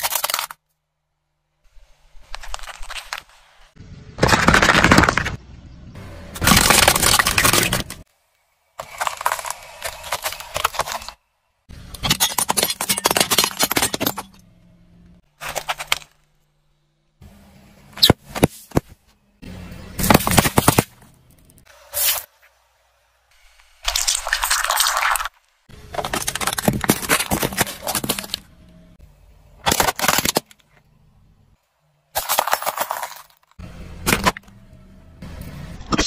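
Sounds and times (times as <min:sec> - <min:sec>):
tyre crushing plastic toys: 0:00.0 - 0:00.6, 0:04.2 - 0:05.4, 0:06.4 - 0:08.1, 0:08.8 - 0:11.2, 0:11.9 - 0:14.4, 0:15.4 - 0:16.2, 0:20.0 - 0:21.1, 0:25.9 - 0:28.5, 0:29.6 - 0:30.6, 0:32.1 - 0:34.4.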